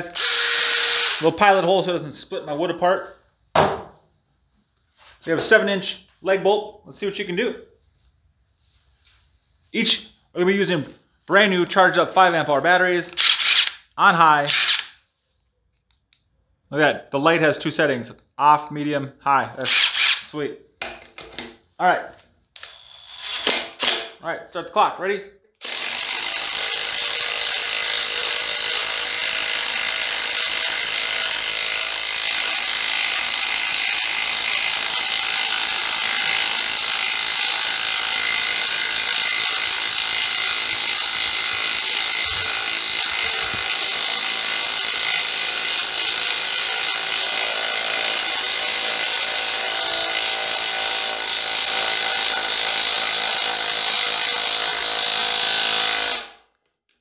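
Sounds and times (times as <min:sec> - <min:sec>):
impact wrench hammering: 0:13.2 - 0:13.9, 0:14.5 - 0:15.0, 0:19.7 - 0:21.6, 0:22.6 - 0:24.2, 0:25.6 - 0:56.3.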